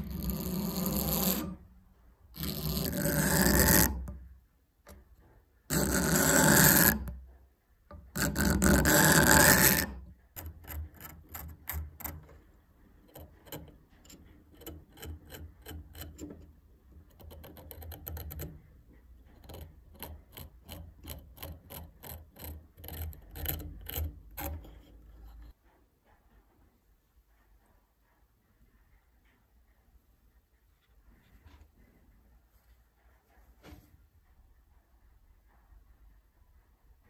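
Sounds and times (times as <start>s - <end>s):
blade scraping wood: 0.0s - 4.3s, 4.9s - 25.6s.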